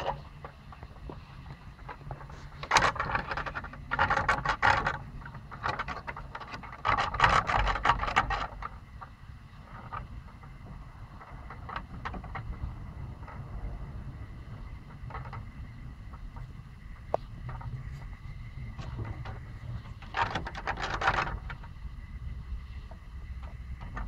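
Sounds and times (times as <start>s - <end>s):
puppies scratching wooden fence: 0.0s - 8.8s, 17.4s - 21.8s.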